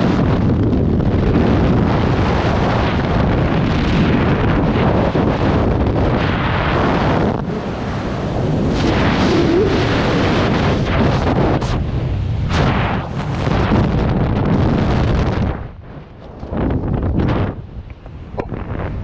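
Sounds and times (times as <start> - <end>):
wind rushing across microphone: 0.0 - 19.0.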